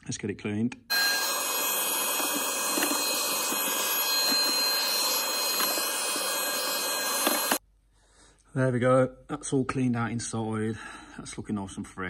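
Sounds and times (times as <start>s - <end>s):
vacuum cleaner motor whine: 0.9s - 7.6s.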